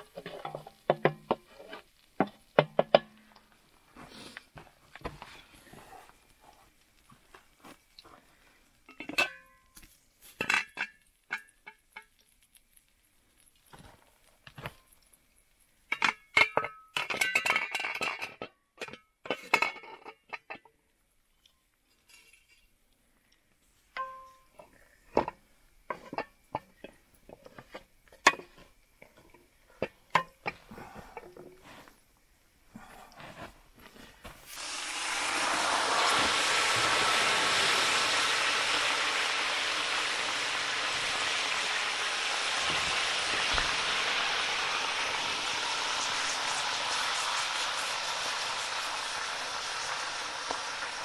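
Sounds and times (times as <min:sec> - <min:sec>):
cooking gear knocks and taps: 0:00.0 - 0:01.6, 0:02.2 - 0:03.4
metal cookware clinking: 0:08.9 - 0:09.7, 0:10.4 - 0:12.1, 0:15.9 - 0:20.7, 0:24.0 - 0:24.6
soft rustle: 0:30.6 - 0:32.2, 0:32.8 - 0:34.6.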